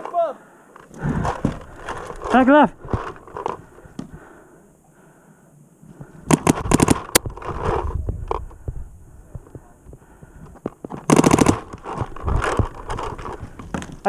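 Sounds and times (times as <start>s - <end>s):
paintball marker firing: 6.3s - 7.4s, 11.0s - 11.9s.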